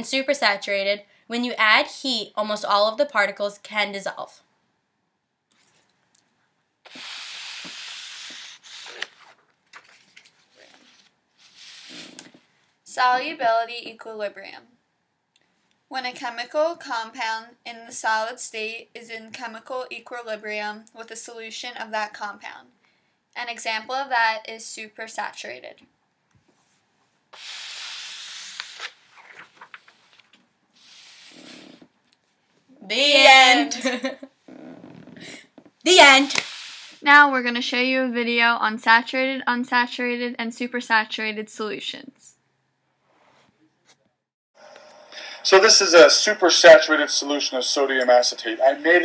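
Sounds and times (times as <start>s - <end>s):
paper card rustling on carpet: 8.4s - 11.7s, 28.5s - 30.4s.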